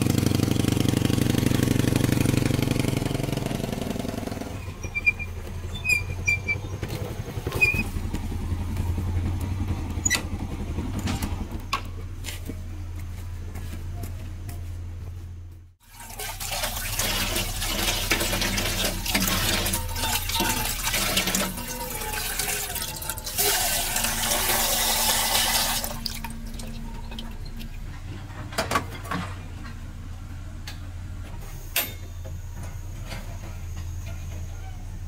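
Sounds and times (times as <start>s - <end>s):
tap water running into pot: 15.8s - 27.7s.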